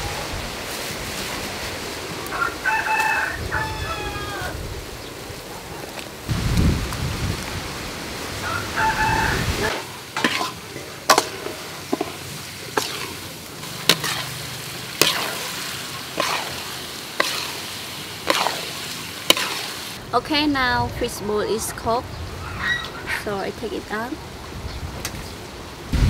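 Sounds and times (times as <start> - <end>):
light sizzle: 0.0 - 20.2
soup boiling in pot: 5.9 - 20.0
metal spatula scraping wok: 9.6 - 20.0.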